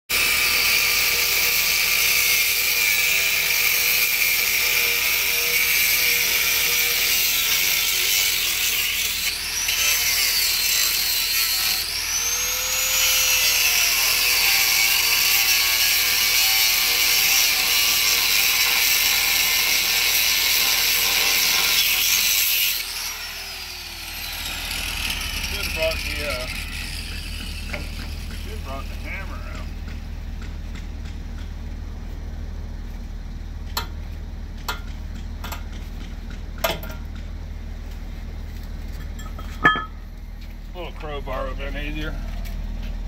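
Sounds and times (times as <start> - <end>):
handheld power tool running: 0.1 - 29.8.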